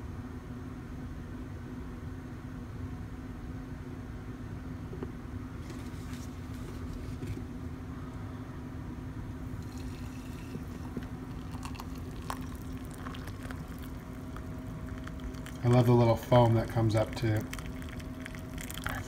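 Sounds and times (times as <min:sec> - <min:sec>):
steady low hum: 0:00.0 - 0:19.0
coffee pouring into mug: 0:09.4 - 0:19.0.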